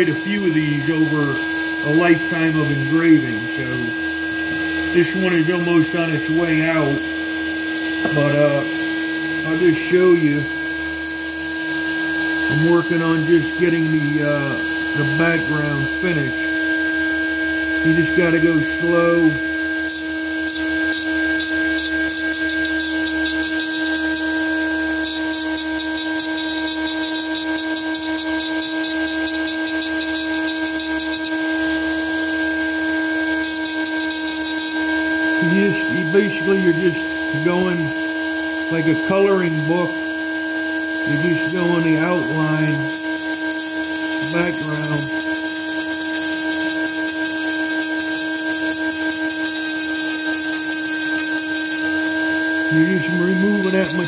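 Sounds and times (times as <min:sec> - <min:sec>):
burr scratching metal: 0:00.0 - 0:10.7, 0:11.4 - 0:54.0
rotary tool whine: 0:00.0 - 0:54.0.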